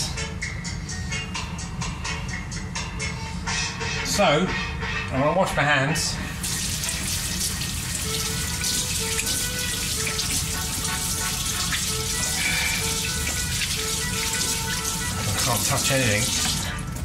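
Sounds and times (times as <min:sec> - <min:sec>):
hands washing under water: 0:06.4 - 0:17.0
tap running into steel sink: 0:13.0 - 0:15.3.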